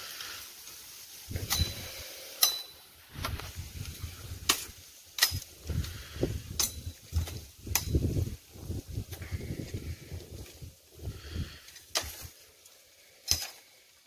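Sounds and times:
leaves and brush rustling: 0:00.0 - 0:14.0.

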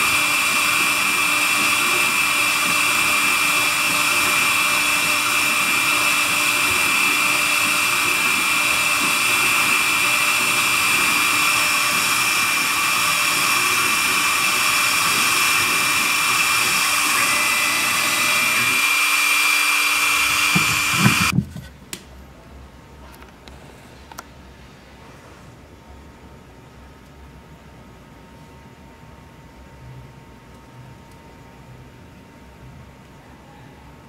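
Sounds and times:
hiss of wood cutting: 0:00.0 - 0:21.3
router spindle whine: 0:00.0 - 0:21.4.

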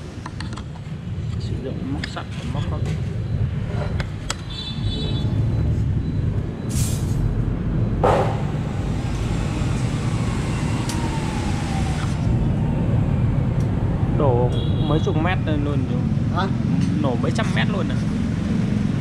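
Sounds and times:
road traffic rumble: 0:00.0 - 0:19.0
short hiss: 0:06.7 - 0:07.2
sharp knock: 0:08.0 - 0:08.6.

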